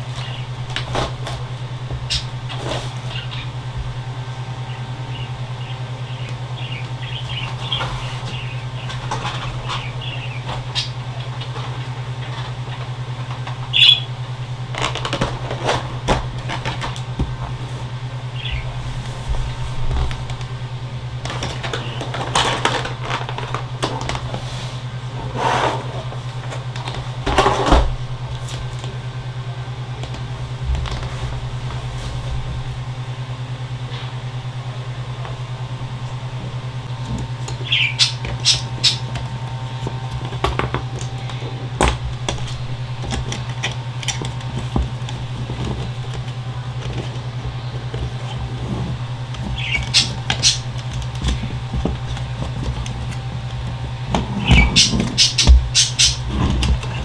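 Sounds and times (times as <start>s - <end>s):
steady low hum: 0.0s - 57.0s
parts rustling: 36.9s - 57.0s.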